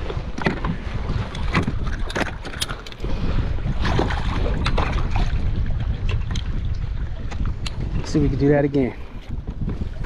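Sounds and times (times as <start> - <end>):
wind rumbling on microphone: 0.0 - 10.0
fishing tackle clicking and clattering: 1.3 - 3.0.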